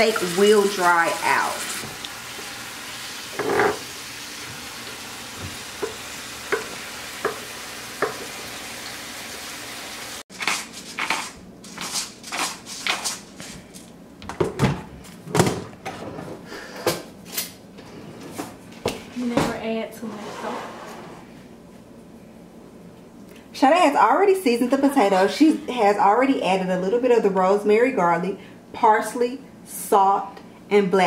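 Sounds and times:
steak sizzling in a frying pan: 0.0 - 10.2.

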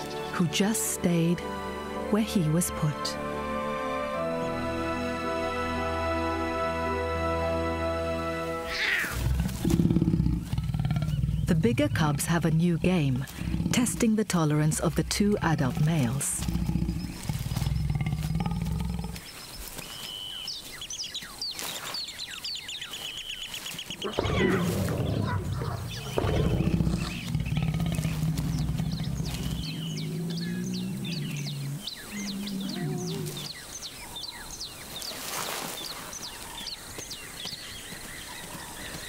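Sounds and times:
lion growling: 9.0 - 19.3, 24.0 - 33.6.

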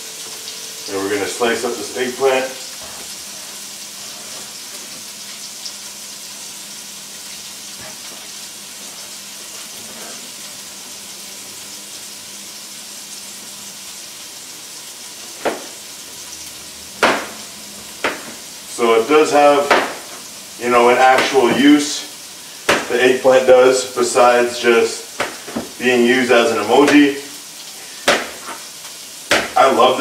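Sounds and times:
vegetables sizzling in pan: 0.0 - 30.0
sharp knocks: 17.0 - 17.4, 18.0 - 18.4, 19.7 - 20.1, 22.7 - 22.9, 28.0 - 28.6, 29.3 - 29.6.

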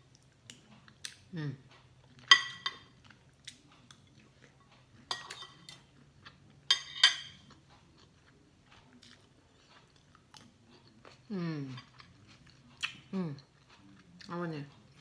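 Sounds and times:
cutlery clinking on ceramic plate: 2.2 - 3.0, 5.0 - 5.8, 6.7 - 7.6.

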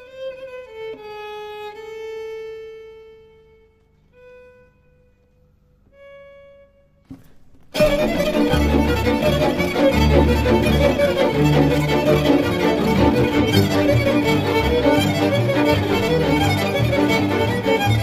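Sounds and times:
loud full music: 7.8 - 18.0.

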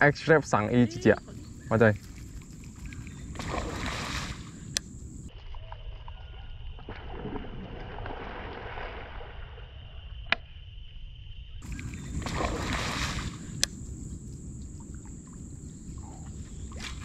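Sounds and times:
steady outdoor hiss: 0.0 - 6.7, 8.7 - 17.0
light splashing on water: 1.3 - 5.3, 11.6 - 17.0
fish striking with a splash: 3.3 - 4.5, 11.7 - 13.6
sharp click: 4.7 - 4.9.

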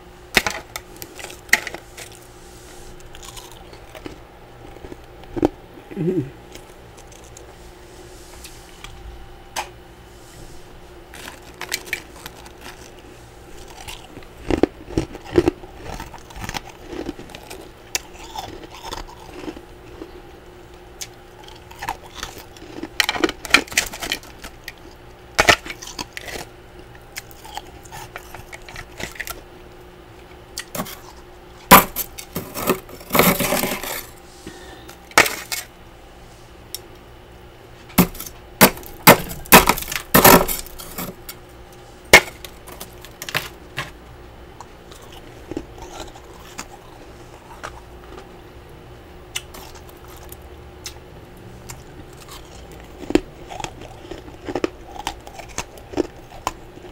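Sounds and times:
hand tool scraping freezer frost: 32.4 - 34.1.

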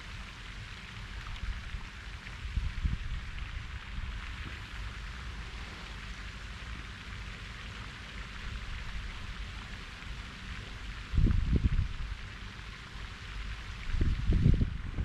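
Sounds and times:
wind rumbling on microphone: 1.2 - 6.1, 10.6 - 12.5, 13.6 - 15.0
outdoor hiss: 3.3 - 14.6.

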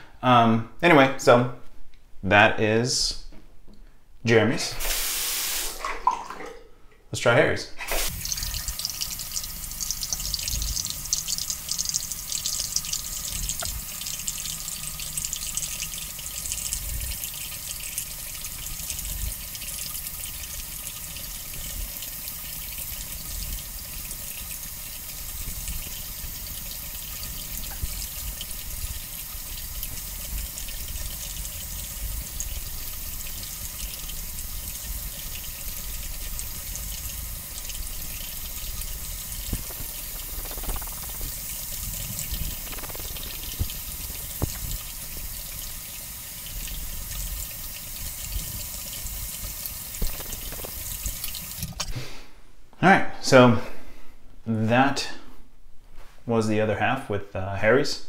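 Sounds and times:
tap water running into sink: 4.8 - 6.6, 7.8 - 51.9
razor scraping through beard: 39.6 - 41.3, 42.5 - 43.8.

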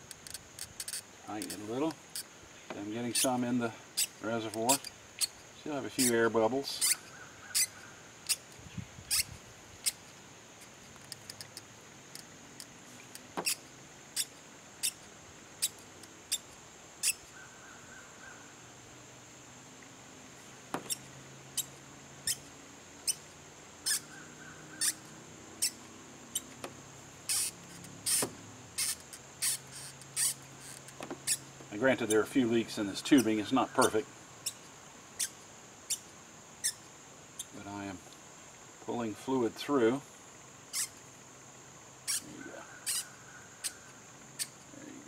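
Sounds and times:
brake bleeder squeaky ticks: 0.0 - 17.5, 20.8 - 38.2, 40.7 - 41.0, 42.0 - 44.7.

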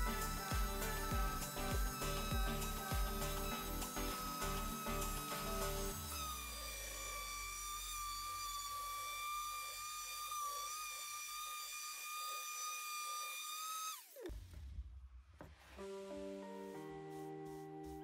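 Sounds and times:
orbital sander whining: 0.0 - 14.3
sander motor spinning down: 0.0 - 14.7.

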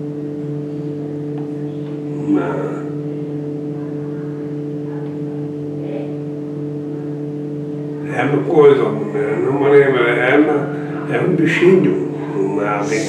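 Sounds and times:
low-pitched hum with tones: 0.0 - 13.0
man murmuring: 2.1 - 2.9, 8.8 - 13.0.

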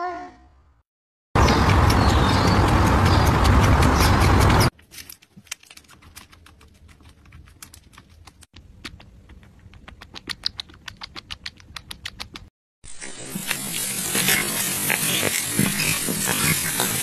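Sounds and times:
kittens suckling bottles: 5.8 - 17.0.

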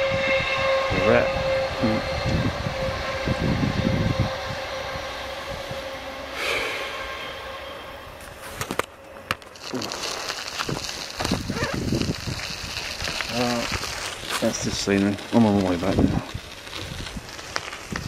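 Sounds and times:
train rumbling past: 0.0 - 9.3
rustling hiss: 4.5 - 18.0.

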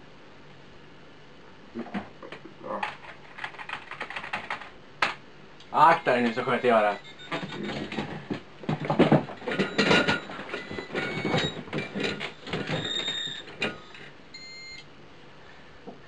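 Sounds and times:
computer keyboard clacking: 2.8 - 5.2
short high electronic beeps: 6.9 - 7.6.

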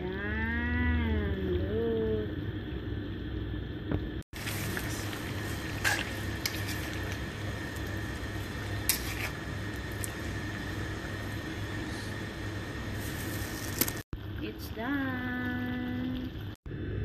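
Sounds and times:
stew simmering and squelching: 4.3 - 14.0.

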